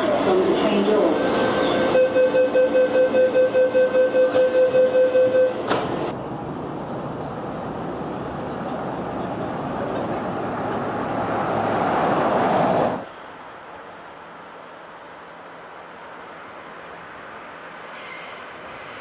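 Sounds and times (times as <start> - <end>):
trains rumbling at a platform: 0.0 - 19.0
rapid electronic warning beeps: 2.0 - 5.6.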